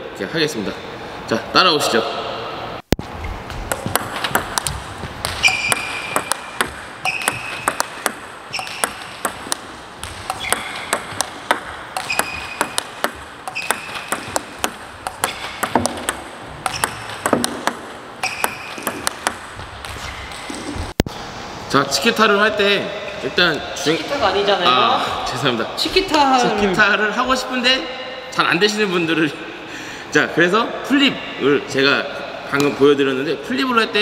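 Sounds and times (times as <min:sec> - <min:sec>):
table tennis balls clicking: 0:03.6 - 0:21.0.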